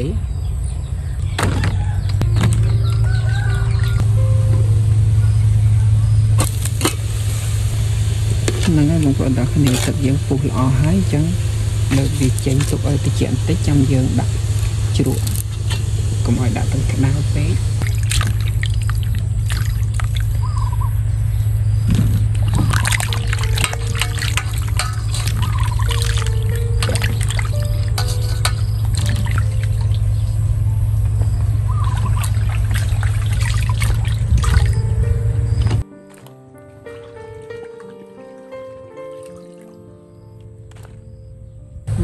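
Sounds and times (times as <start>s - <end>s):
steady low hum: 0.0s - 35.8s
water splashing in a steel basin: 6.4s - 7.8s, 8.4s - 20.7s, 22.2s - 30.4s, 31.6s - 36.2s, 39.1s - 39.8s
short wavering calls: 20.2s - 33.3s.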